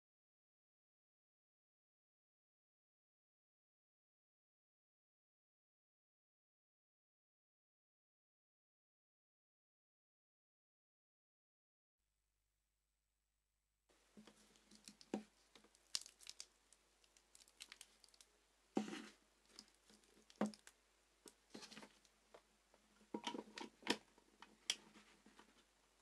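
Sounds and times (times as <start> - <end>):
hands handling cable and plastic: 14.1 - 25.7.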